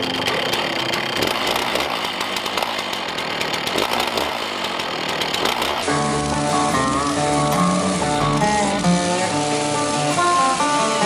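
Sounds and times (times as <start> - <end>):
music: 0.0 - 0.3, 5.8 - 11.0
chainsaw cutting through log: 0.0 - 11.0.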